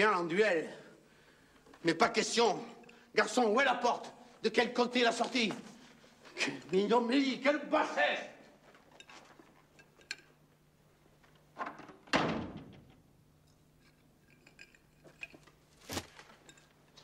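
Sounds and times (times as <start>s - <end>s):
door slamming in large hall: 12.0s - 13.0s.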